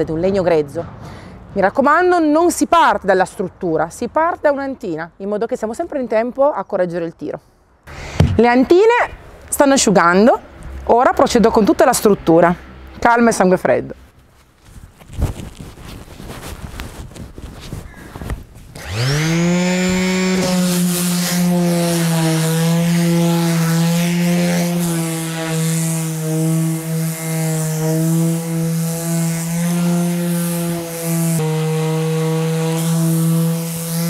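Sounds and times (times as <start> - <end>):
orbital sander sanding wood: 18.7 - 34.0.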